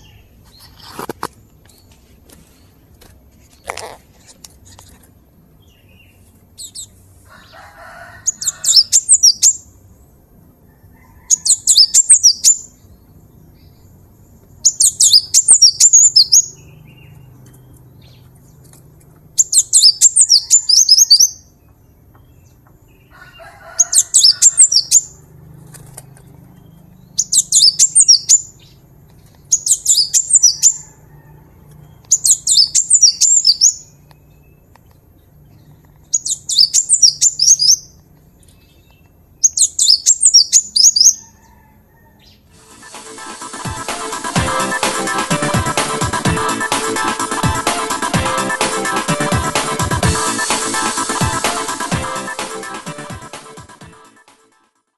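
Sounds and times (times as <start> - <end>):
bird singing rapid high notes: 14.7 - 17.3, 19.4 - 21.5, 26.7 - 28.8, 29.5 - 30.8, 32.2 - 34.4, 36.2 - 38.0.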